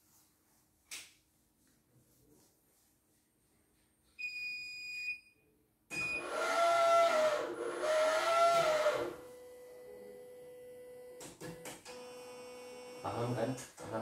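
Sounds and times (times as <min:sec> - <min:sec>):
motors whining: 0:06.2 - 0:09.2.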